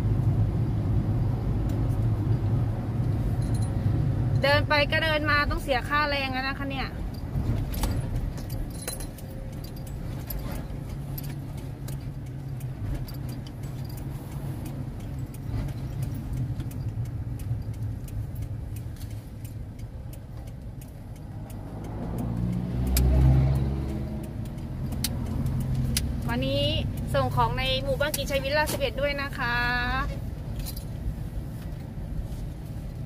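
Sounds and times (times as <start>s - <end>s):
road rumble: 0.0s - 33.0s
truck engine: 6.8s - 28.8s.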